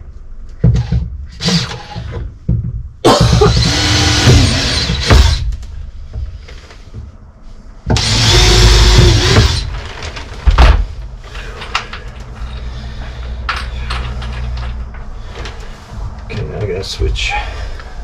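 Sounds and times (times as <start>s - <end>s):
cordless drill driving a screw: 1.4s - 2.1s, 3.5s - 5.4s, 8.0s - 9.7s.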